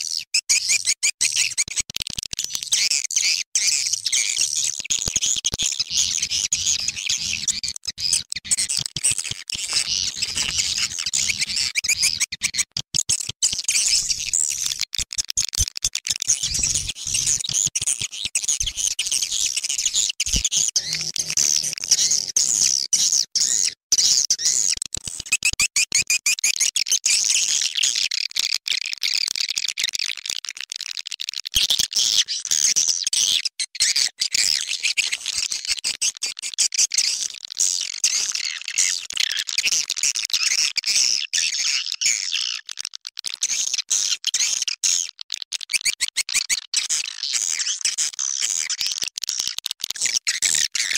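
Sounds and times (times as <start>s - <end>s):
swiftlets twittering and chirping: 6.8s - 12.7s, 16.3s - 23.7s.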